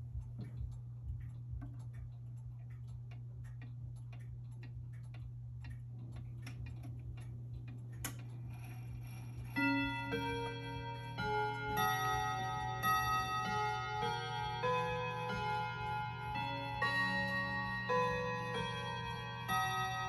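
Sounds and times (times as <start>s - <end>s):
wall clock ticking: 0.0s - 20.0s
clock chime striking: 8.6s - 20.0s.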